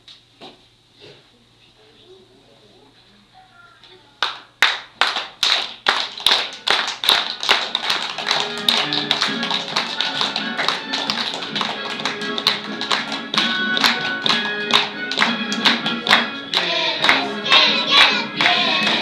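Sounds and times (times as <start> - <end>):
rhythmic hand clapping: 4.2 - 19.0
melodic music: 8.2 - 18.8.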